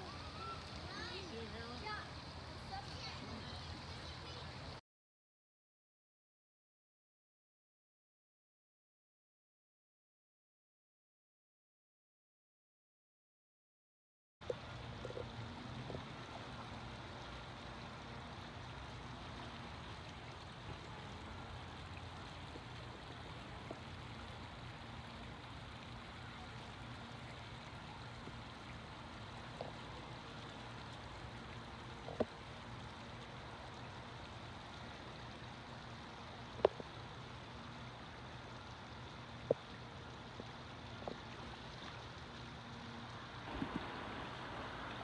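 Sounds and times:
creek water rushing and splashing: 0.0s - 4.8s, 14.4s - 45.0s.

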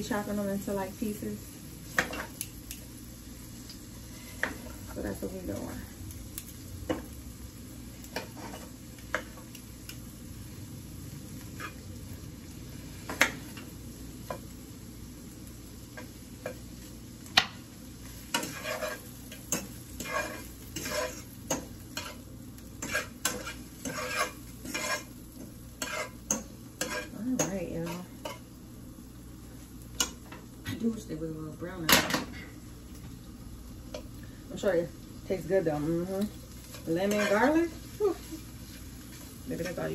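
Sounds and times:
shrimp sizzling in a pan: 0.0s - 39.9s
cutlery clicking on a pan: 1.9s - 2.8s, 4.4s - 4.8s, 6.4s - 7.2s, 8.0s - 10.0s, 13.1s - 14.5s, 15.9s - 16.6s, 17.3s - 28.5s, 29.9s - 30.5s, 31.9s - 32.4s, 36.2s - 37.6s.

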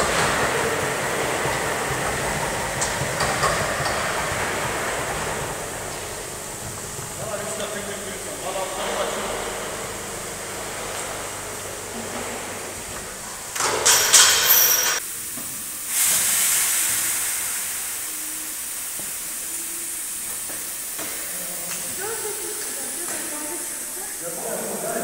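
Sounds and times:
steady background hiss: 0.0s - 25.0s
machine hissing bursts: 13.2s - 25.0s.

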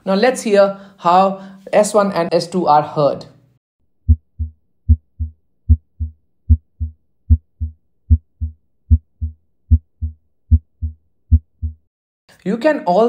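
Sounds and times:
heartbeat: 4.1s - 11.9s.

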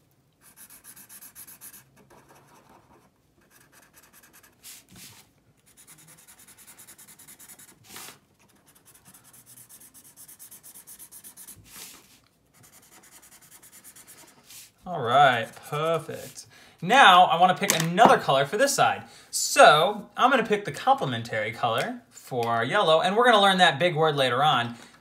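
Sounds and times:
marker scratching on paper: 0.4s - 16.4s
paper scuffing on desk: 4.6s - 5.3s, 11.6s - 12.2s.

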